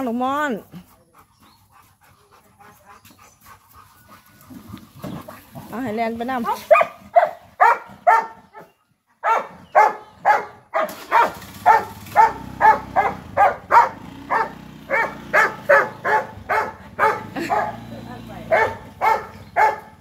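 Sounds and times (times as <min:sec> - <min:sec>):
dog barking: 0:06.5 - 0:20.0
scooter engine humming: 0:09.8 - 0:20.0.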